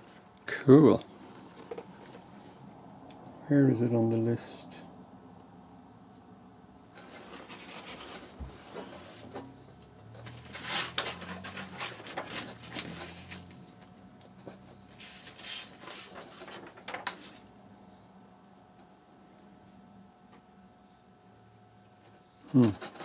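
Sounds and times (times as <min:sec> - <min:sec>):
paper rustling and crinkling: 0:06.9 - 0:17.5.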